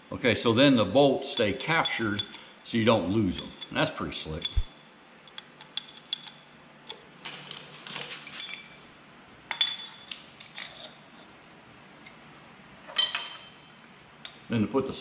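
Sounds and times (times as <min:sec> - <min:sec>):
metal parts clinking: 0:01.4 - 0:02.6, 0:03.3 - 0:07.1, 0:08.0 - 0:08.9, 0:12.9 - 0:13.7.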